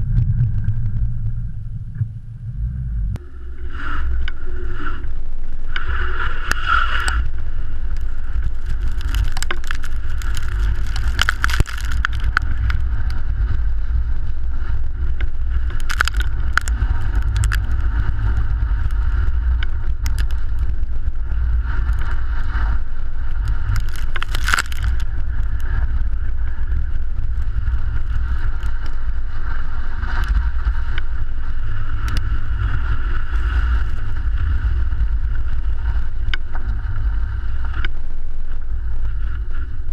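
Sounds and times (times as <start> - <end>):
road and wind noise: 0.0 - 39.9
tyres crunching on ice: 7.9 - 12.9, 15.7 - 18.4, 23.5 - 25.1.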